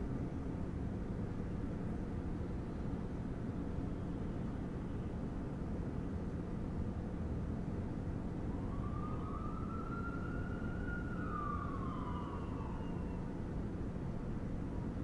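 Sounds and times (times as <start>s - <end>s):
low city rumble: 0.0s - 15.0s
emergency vehicle siren wailing: 8.3s - 13.9s.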